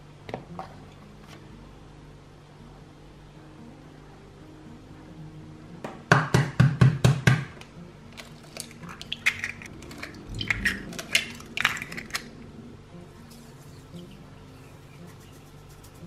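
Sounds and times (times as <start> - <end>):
eggshells crackling: 8.2 - 12.5.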